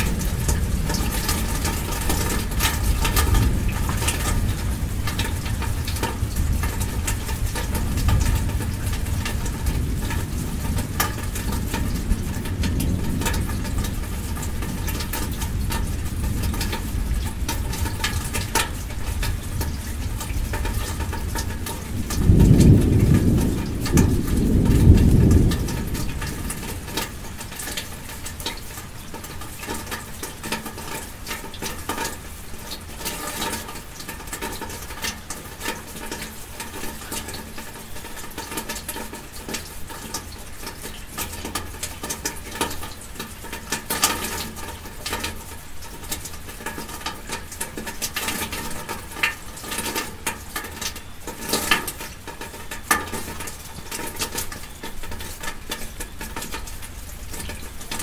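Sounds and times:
loud raindrop hits: 0.0s - 31.0s
rain falling: 0.0s - 58.0s.

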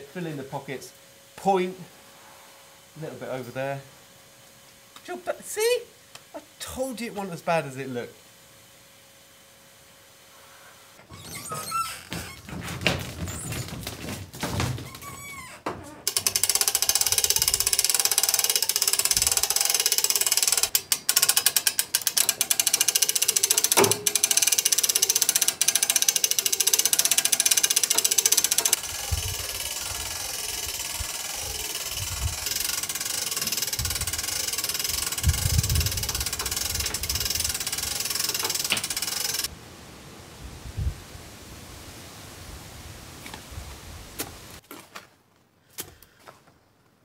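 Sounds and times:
winch ratchet clicking: 16.1s - 39.5s.

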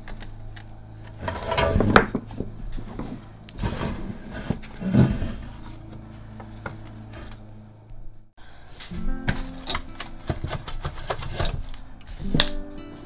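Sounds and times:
metal scraping and rattling: 1.1s - 7.5s, 8.8s - 12.6s.

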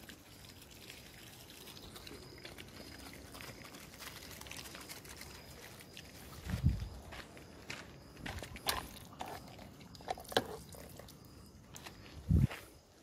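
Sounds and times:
dogs chewing and lapping: 0.0s - 6.4s, 8.4s - 11.2s.

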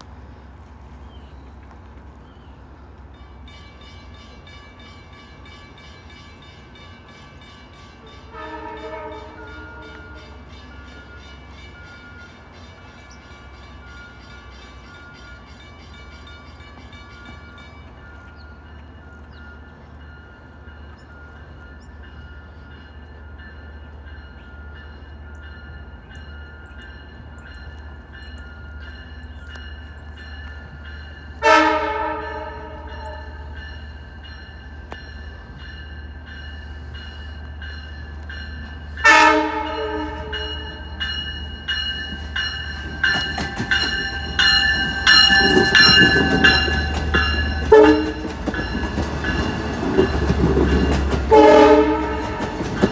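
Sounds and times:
train horn: 8.0s - 10.5s, 31.4s - 33.6s, 39.0s - 40.9s, 47.3s - 48.4s, 51.3s - 52.9s.

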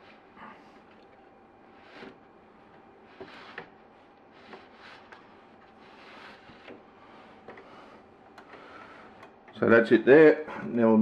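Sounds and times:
faint scraping: 1.6s - 9.3s.

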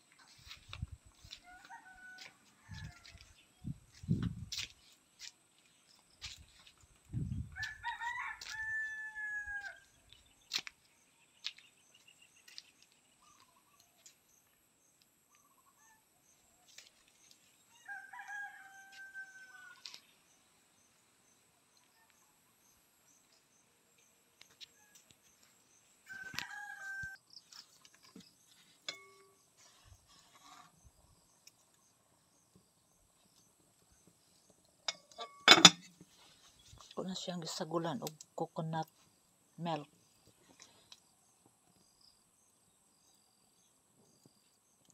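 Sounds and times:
rooster crowing: 1.4s - 3.4s, 7.6s - 9.9s, 17.7s - 19.9s, 26.0s - 27.2s.

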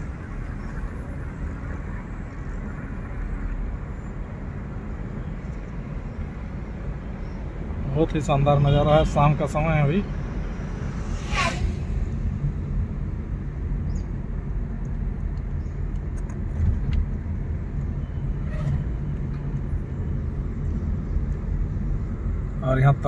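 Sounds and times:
car engine and tyre rumble: 0.0s - 23.0s
brief high sweeping sound: 10.7s - 12.5s.

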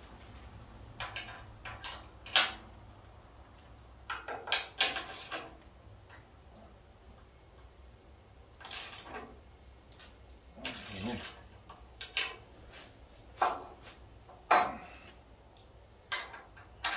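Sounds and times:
metal tools and bolts clinking: 1.0s - 2.7s, 3.4s - 6.4s, 8.6s - 9.4s, 10.5s - 12.4s.

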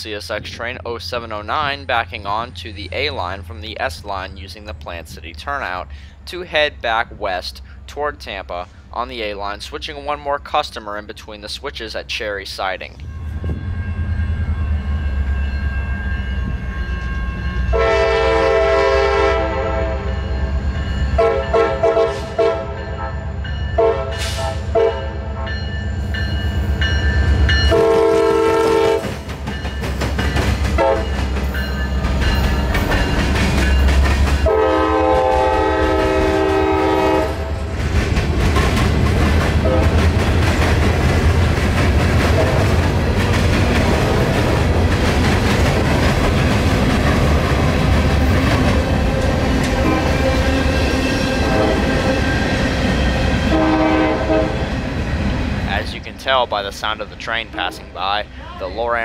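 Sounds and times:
locomotive air horn blasts: 17.7s - 20.2s, 21.2s - 25.6s, 27.7s - 29.1s, 30.8s - 31.2s, 34.4s - 37.6s, 39.6s - 40.0s, 49.8s - 52.2s, 53.5s - 54.6s
train wheels clacking on rails: 29.0s - 34.5s, 37.6s - 53.5s.

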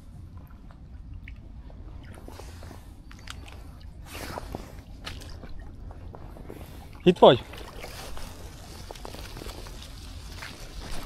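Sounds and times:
steady low rumble: 0.0s - 11.0s
fishing gear rustling and clicking: 2.1s - 6.8s, 7.4s - 11.0s.

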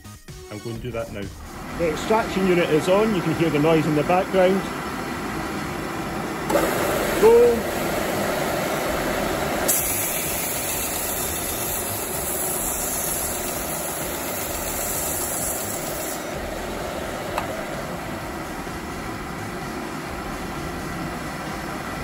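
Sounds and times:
belt sander hum: 1.4s - 22.0s
sanding hiss: 9.6s - 16.7s.

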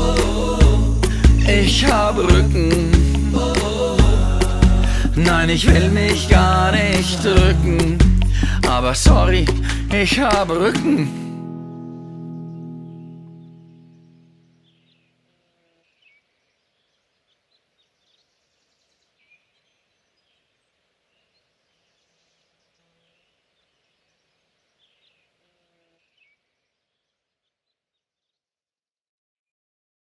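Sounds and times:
bird chirps: 11.4s - 20.5s.

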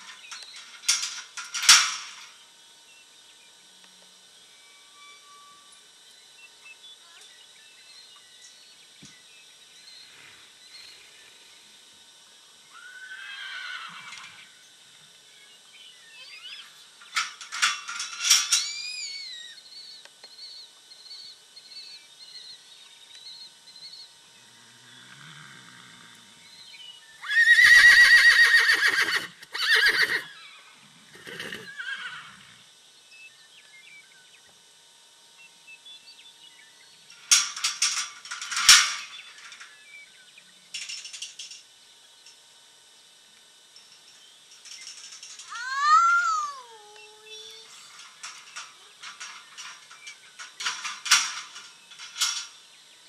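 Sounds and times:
metal gate rattling: 0.0s - 2.4s, 16.6s - 19.6s, 37.0s - 39.9s, 40.6s - 42.4s, 43.7s - 46.6s, 47.3s - 52.8s
horse whinnying: 12.8s - 14.4s, 27.2s - 32.6s.

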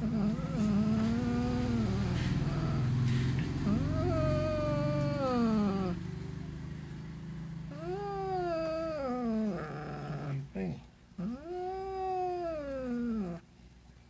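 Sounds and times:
cat growling: 0.0s - 6.0s, 7.7s - 13.4s
cat yowling: 3.6s - 6.0s, 7.7s - 10.3s, 11.2s - 13.4s.

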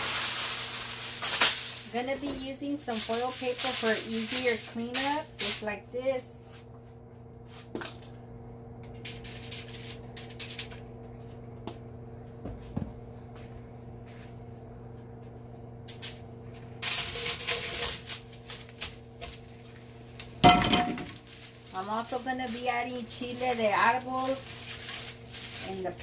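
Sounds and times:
aluminium foil crinkling: 0.0s - 5.7s, 8.9s - 10.9s, 16.8s - 26.0s
steady low hum: 0.0s - 26.0s.

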